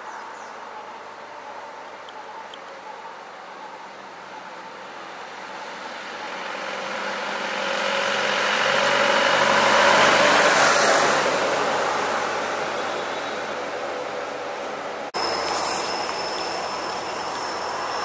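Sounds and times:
vehicle passing by: 0:04.8 - 0:14.7.

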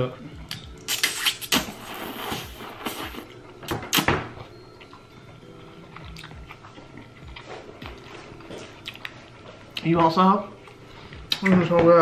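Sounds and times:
mouth sounds: 0:00.9 - 0:03.3
slurping noodles: 0:00.9 - 0:03.3.

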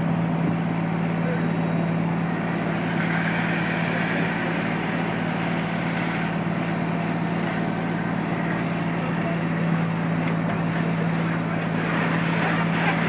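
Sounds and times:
diesel engine running at high revs: 0:00.0 - 0:13.0.

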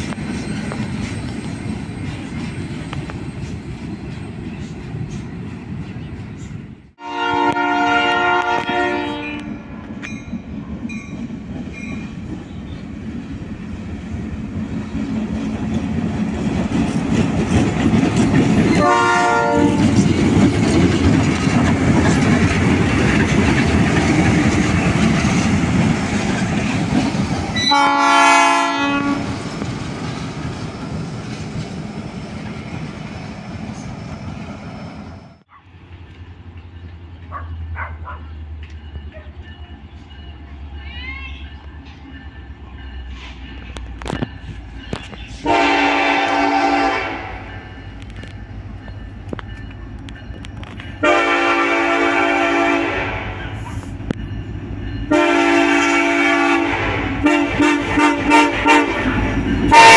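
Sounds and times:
diesel locomotive engine rumble: 0:00.0 - 0:59.9
locomotive air horn blasts: 0:07.0 - 0:09.7, 0:18.8 - 0:19.9, 0:27.6 - 0:29.4, 0:45.4 - 0:47.6, 0:51.0 - 0:53.8, 0:55.1 - 0:59.1, 0:59.7 - 0:59.9
freight cars rolling: 0:09.9 - 0:27.7.

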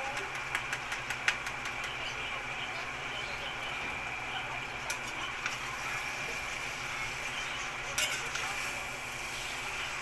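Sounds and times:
food sizzling in a pan: 0:04.9 - 0:10.0.

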